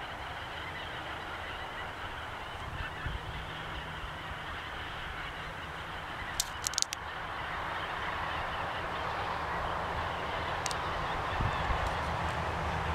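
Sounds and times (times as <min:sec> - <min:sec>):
sharp clicks: 0:06.4 - 0:07.0.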